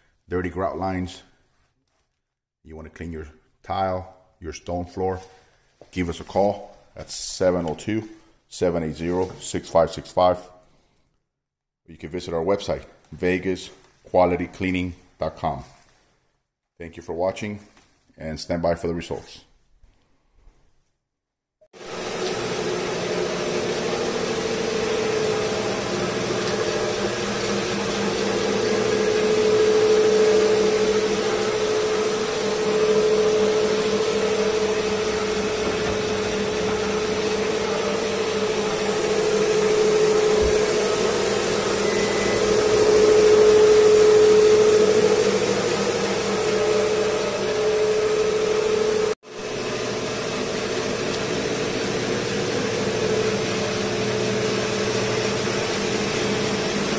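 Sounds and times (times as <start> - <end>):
floor machine motor drone: 21.8 - 56.9.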